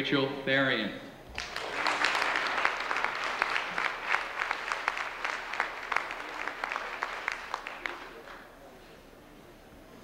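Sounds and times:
audience applauding: 0:01.3 - 0:08.5.

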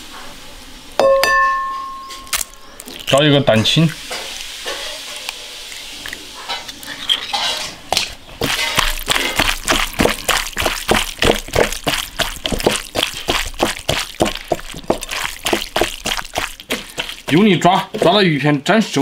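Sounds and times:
wet squelching of kneaded fish: 0:02.3 - 0:19.0.

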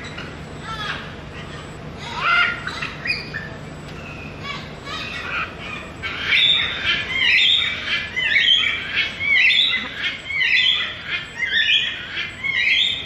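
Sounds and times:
macaw squawking: 0:00.0 - 0:13.0.

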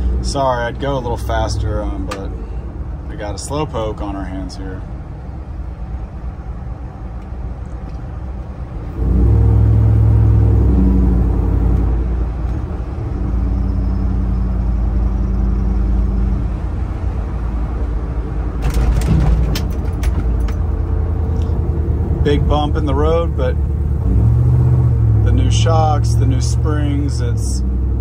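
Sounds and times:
engine deep drone: 0:00.0 - 0:28.0
truck knocking over bump: 0:18.6 - 0:20.7.

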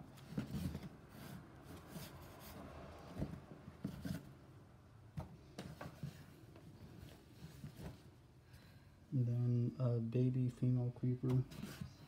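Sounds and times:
rubbing and handling noise: 0:00.0 - 0:04.6, 0:05.4 - 0:08.3, 0:11.2 - 0:12.0.

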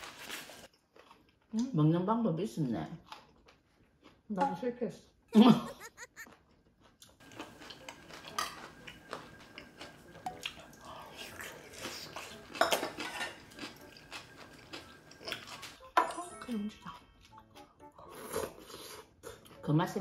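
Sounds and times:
chopsticks clinking on bowls: 0:11.4 - 0:16.5.

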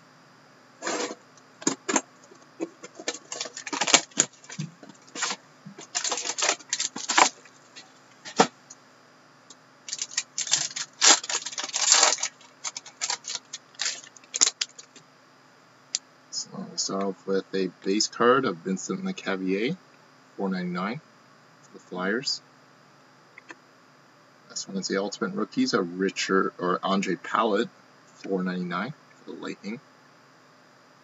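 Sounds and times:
plastic wrap crinkling: 0:02.6 - 0:07.5, 0:09.9 - 0:15.0.

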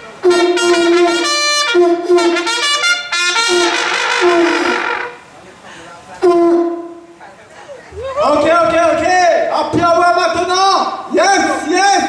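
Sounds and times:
trumpet notes: 0:00.0 - 0:05.3, 0:06.2 - 0:07.2
conch shell blasts: 0:00.2 - 0:05.2, 0:06.2 - 0:07.1.

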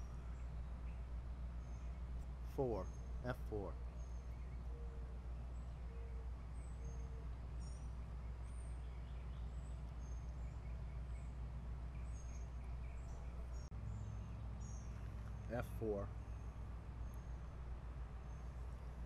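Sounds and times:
small birds chirping: 0:00.0 - 0:19.0
steady low rumble: 0:00.0 - 0:19.0.

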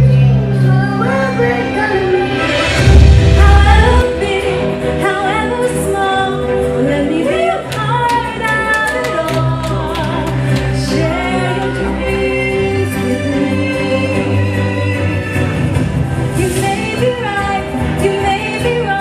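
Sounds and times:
live band playing: 0:00.0 - 0:19.0.

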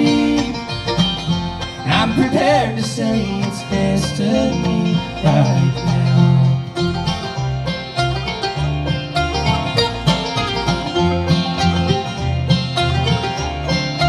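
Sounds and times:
acoustic guitar: 0:00.0 - 0:14.0
banjo: 0:00.0 - 0:14.0
mandolin: 0:00.0 - 0:14.0
upright bass: 0:00.0 - 0:14.0.

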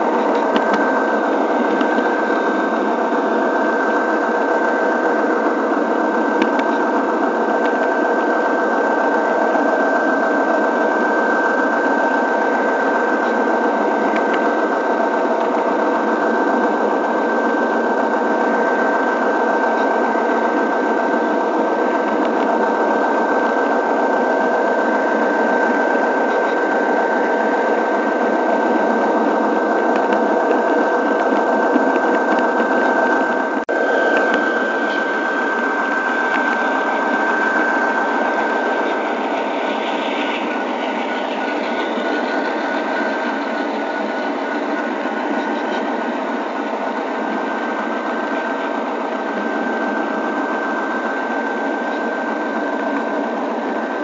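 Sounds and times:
wheels rolling on rails: 0:08.9 - 0:50.5
model train motor whirring: 0:23.2 - 0:50.5.

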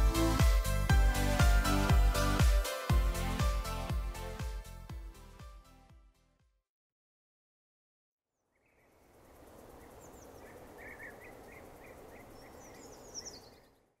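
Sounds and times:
faint outdoor background noise: 0:08.3 - 0:14.0
small birds chirping: 0:08.3 - 0:14.0.

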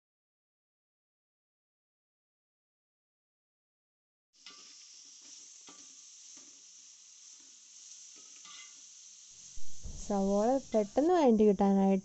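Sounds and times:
onions sizzling in oil: 0:04.4 - 0:12.0
steel spoon scraping pan: 0:04.5 - 0:11.0.

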